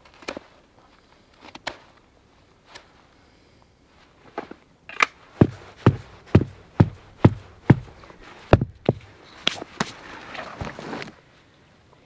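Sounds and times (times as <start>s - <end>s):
rustling: 0.0s - 11.5s
footsteps on frozen ground: 5.3s - 10.0s.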